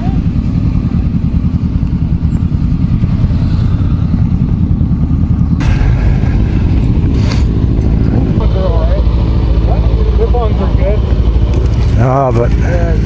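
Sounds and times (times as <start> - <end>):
motorcycle engine running: 0.0 - 13.0
wind rumble on helmet camera: 1.1 - 9.0.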